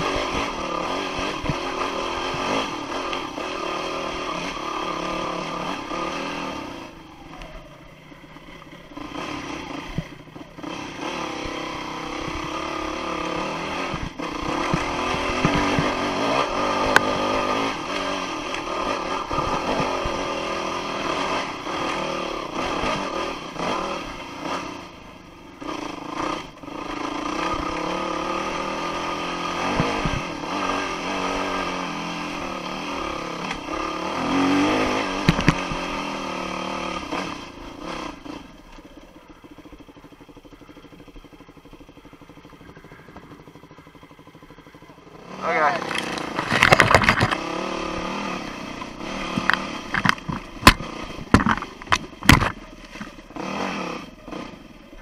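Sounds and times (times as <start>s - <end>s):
dirt bike engine revving: 0.0s - 55.0s
sharp knocks from bike: 13.9s - 16.0s, 35.2s - 35.9s, 45.8s - 47.4s, 49.4s - 53.2s.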